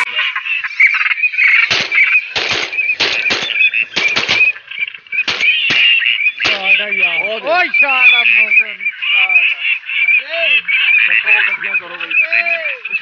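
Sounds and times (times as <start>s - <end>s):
shotgun shots: 1.6s - 4.6s, 5.2s - 6.8s.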